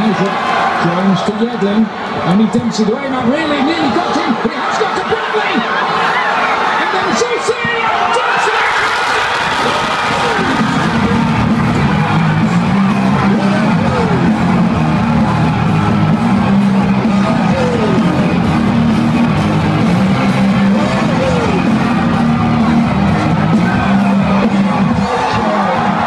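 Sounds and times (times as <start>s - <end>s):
crowd cheering and singing along: 0.0s - 26.0s
loud rock music: 8.3s - 26.0s.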